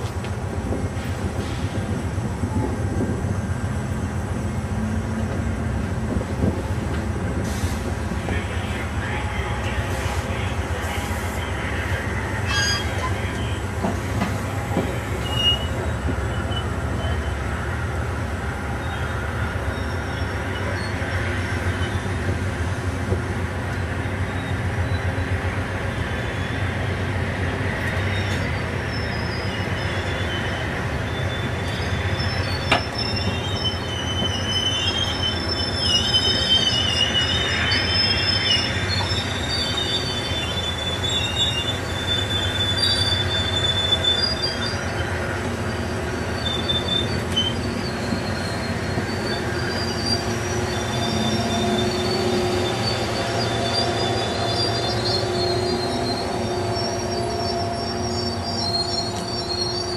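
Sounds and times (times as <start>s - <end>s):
train wheels rumbling on rail: 0.0s - 59.9s
wheels squealing: 27.8s - 59.9s.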